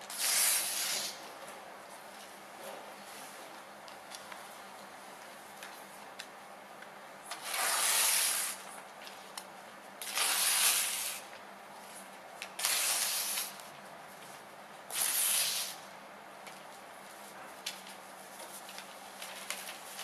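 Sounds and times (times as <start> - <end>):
paper tearing: 0.1 - 1.2, 7.3 - 8.6, 10.0 - 11.2, 12.6 - 13.6, 14.9 - 15.8.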